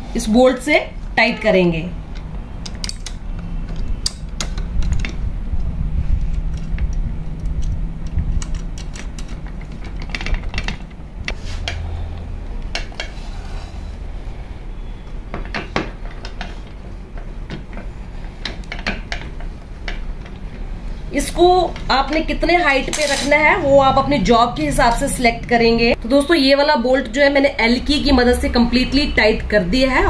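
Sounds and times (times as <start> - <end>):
low steady hum: 0.0 - 30.0
metal clinks and clicks: 22.8 - 23.4.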